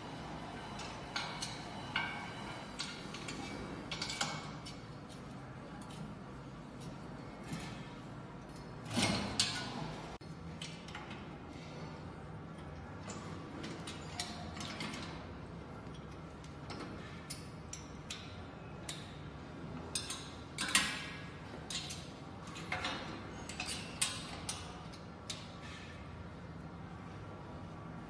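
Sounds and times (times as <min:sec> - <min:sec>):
metal bolts and wrench clinking: 0:00.8 - 0:06.2, 0:12.6 - 0:19.2, 0:19.8 - 0:25.9.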